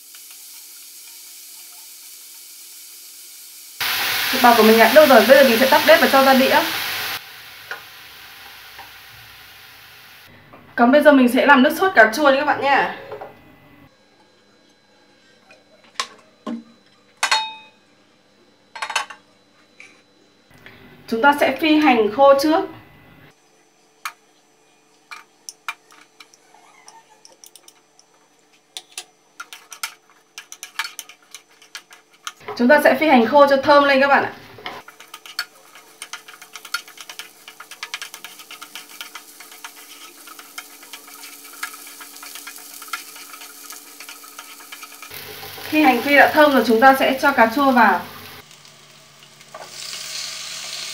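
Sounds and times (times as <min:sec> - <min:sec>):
shallots sizzling in hot oil: 0:00.0 - 0:10.3, 0:28.8 - 0:50.9
frying pan clinking on burner grate: 0:17.2 - 0:17.6.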